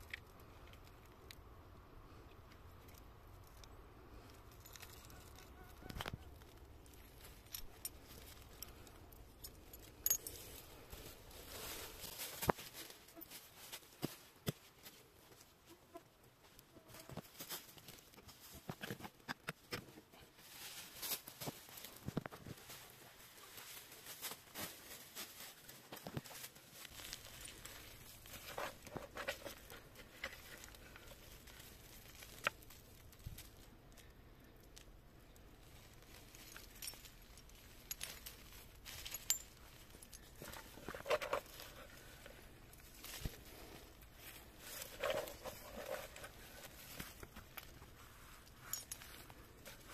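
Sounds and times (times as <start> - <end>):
hands rummaging through dry leaves: 4.5 - 15.3, 20.3 - 34.1, 35.6 - 49.9
coins dropping onto leaves: 35.9 - 42.2.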